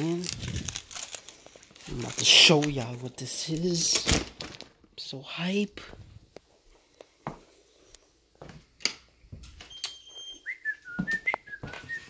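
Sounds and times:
wavering whistle: 0:09.7 - 0:12.0.

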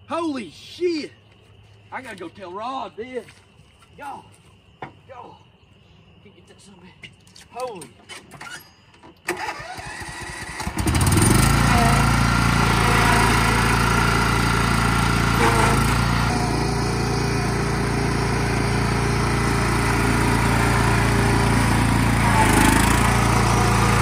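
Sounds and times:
riding lawn mower engine running: 0:09.3 - 0:24.0.

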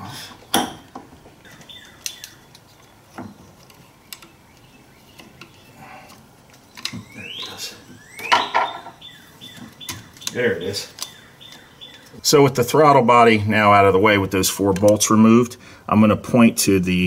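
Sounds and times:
bird chirps: 0:01.4 - 0:12.2.

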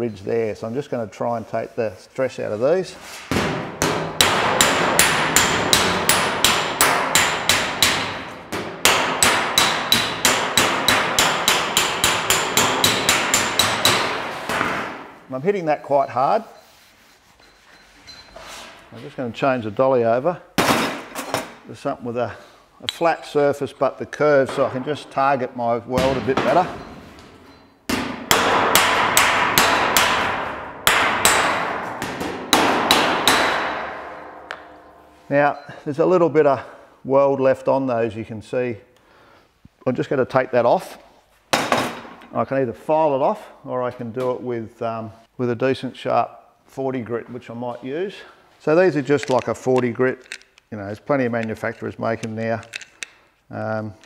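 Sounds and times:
hammer striking metal car bonnet: 0:03.3 - 0:15.1, 0:27.9 - 0:34.8.

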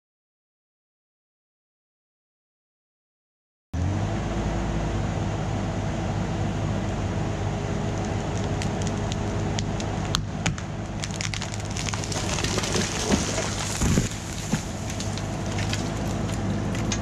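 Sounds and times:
excavator diesel engine running: 0:03.8 - 0:17.0
wood cracking and splintering: 0:07.9 - 0:17.0.

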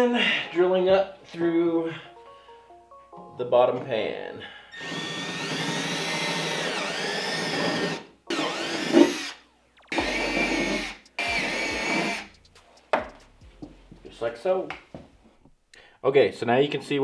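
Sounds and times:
cordless drill whining: 0:04.7 - 0:12.3
knock: 0:12.9 - 0:13.8.

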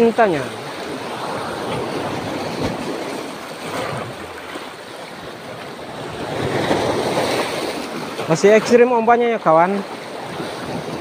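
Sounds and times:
sea waves washing ashore: 0:00.0 - 0:11.0.

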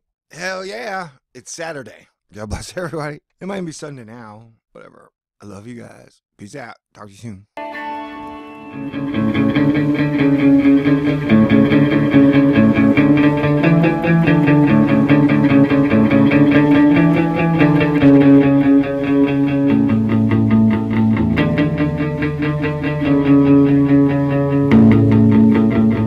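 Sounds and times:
rock music with electric guitar: 0:07.6 - 0:26.0.

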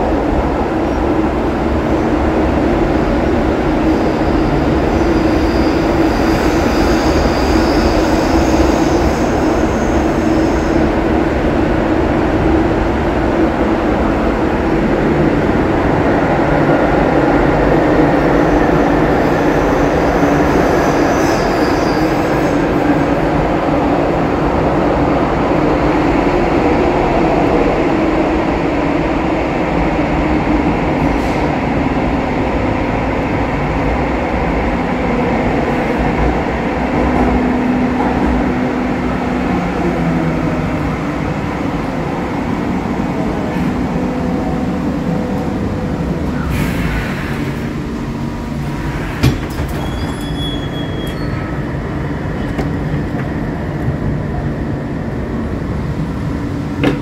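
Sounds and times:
light-rail car rumbling on tracks: 0:00.0 - 0:57.0
brief high squeal: 0:04.1 - 0:10.8, 0:49.5 - 0:51.6.

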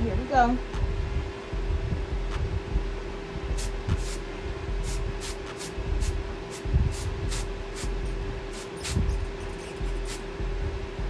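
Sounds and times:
aerosol spray hissing puffs: 0:03.5 - 0:04.2, 0:04.8 - 0:10.3.

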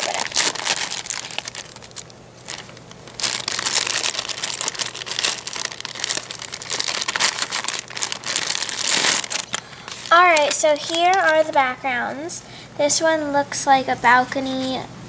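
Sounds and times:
plastic bag crinkling: 0:00.0 - 0:11.7.

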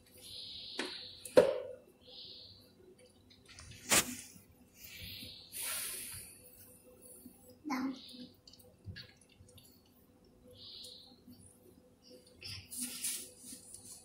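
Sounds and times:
soft rustling and scraping: 0:12.5 - 0:14.0.

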